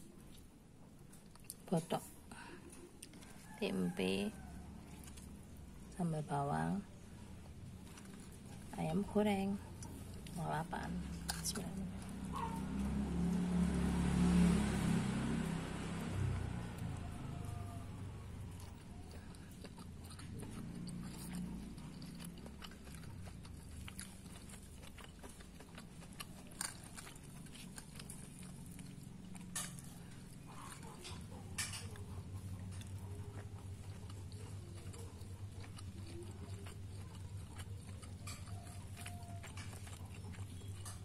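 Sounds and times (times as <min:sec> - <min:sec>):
person chewing: 0:00.0 - 0:41.0.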